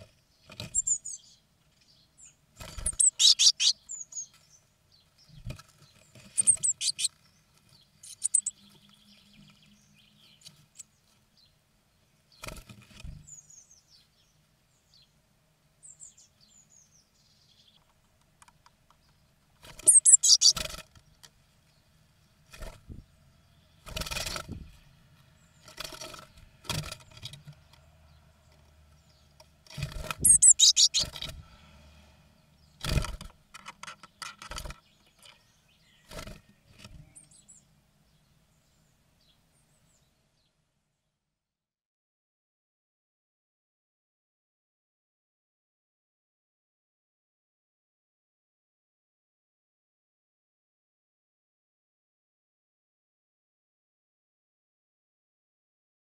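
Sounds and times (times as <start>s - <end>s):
birds chirping: 0.0s - 15.2s, 15.8s - 40.6s.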